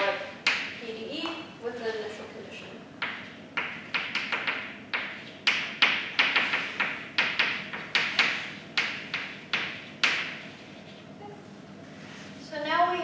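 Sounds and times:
chalk tapping on blackboard: 3.0s - 10.5s.

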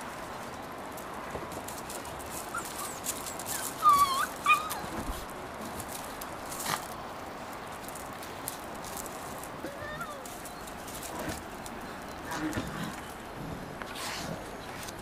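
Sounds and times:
puppies yelping: 2.4s - 5.1s, 9.6s - 11.1s.

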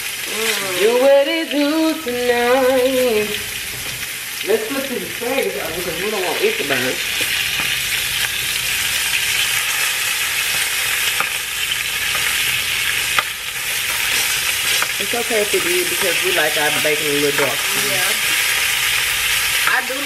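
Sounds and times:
food sizzling in a pan: 0.0s - 20.0s
metal tongs turning food: 2.6s - 20.0s.

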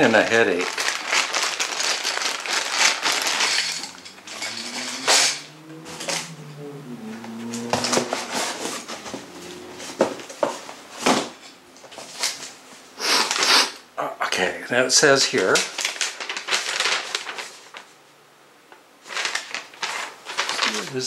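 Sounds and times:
plastic bag crinkling: 0.0s - 5.0s, 15.4s - 18.0s, 19.0s - 21.0s
plastic pieces clacking: 0.0s - 5.4s, 19.1s - 20.9s.

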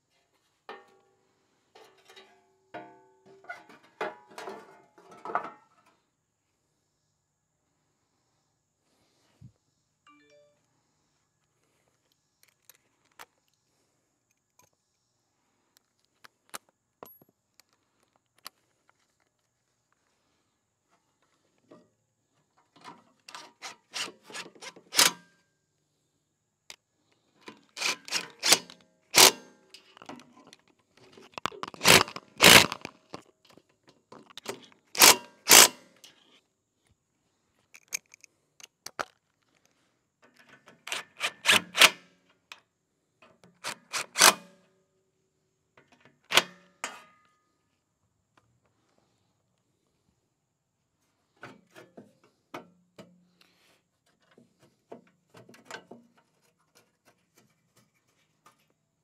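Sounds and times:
cordless drill socket on bolts: 23.6s - 25.2s, 27.5s - 30.2s, 31.2s - 33.2s, 34.2s - 35.8s, 40.8s - 42.0s, 43.6s - 44.4s.

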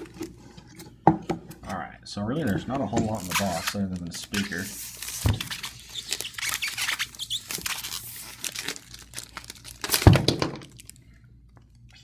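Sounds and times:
styrofoam rubbing and creaking: 2.8s - 10.0s
plastic film crinkling: 3.0s - 11.0s.

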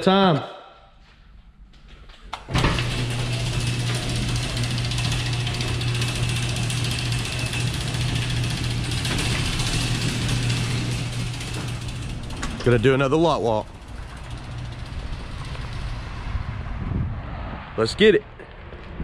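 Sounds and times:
garage door opener motor hum: 2.0s - 16.6s
rollers rattling in track: 2.5s - 16.5s.

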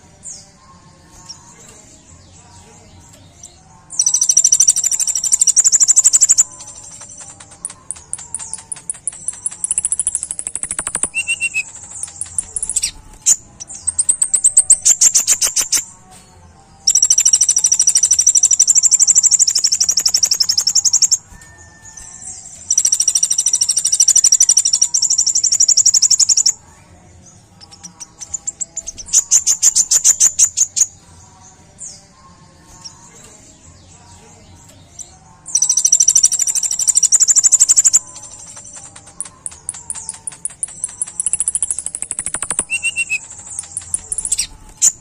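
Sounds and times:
bird singing high trills: 4.0s - 15.9s, 35.4s - 45.0s.

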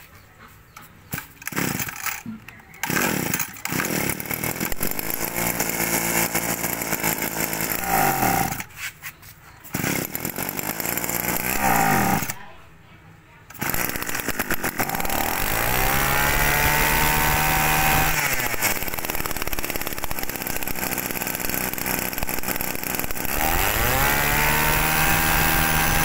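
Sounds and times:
brush cutter engine running: 1.1s - 8.7s, 9.6s - 12.4s, 13.5s - 26.0s
starter cord pulls: 1.1s - 8.7s, 9.7s - 12.4s, 13.5s - 23.9s.

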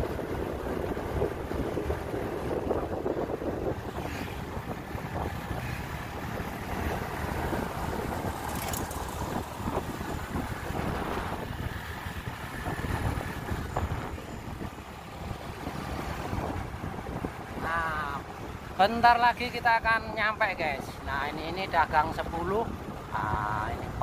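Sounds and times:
wind buffeting microphone: 0.0s - 19.2s
vehicle engine and road noise: 0.0s - 24.0s.

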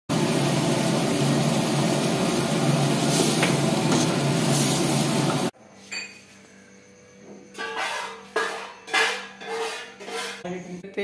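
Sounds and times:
curry sizzling in pan: 0.1s - 5.5s
gas flame roaring: 0.1s - 5.5s.

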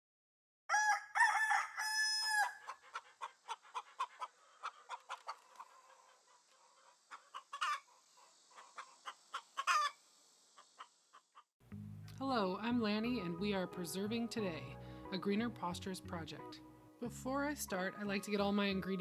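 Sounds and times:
rooster crowing: 0.7s - 2.8s
chicken squawk: 0.7s - 10.0s
chickens clucking: 2.6s - 11.5s.

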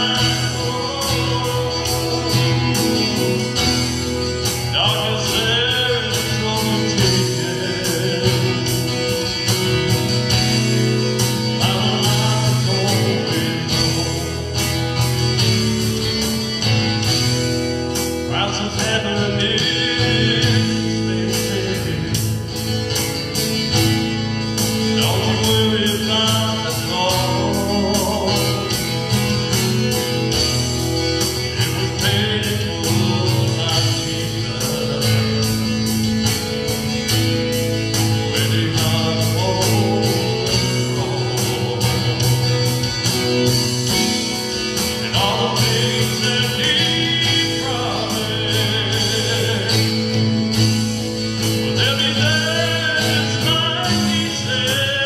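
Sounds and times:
acoustic guitar strumming: 0.0s - 55.0s
man singing: 0.0s - 55.0s.

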